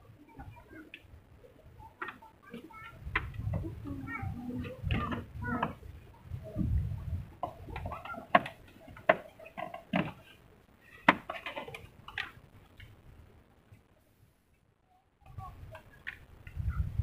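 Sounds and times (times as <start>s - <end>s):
small rattles: 7.3s - 13.0s.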